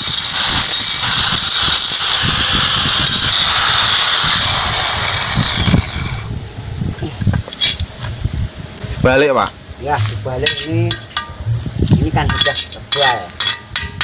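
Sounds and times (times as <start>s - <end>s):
angle grinder grinding metal: 0.0s - 6.4s.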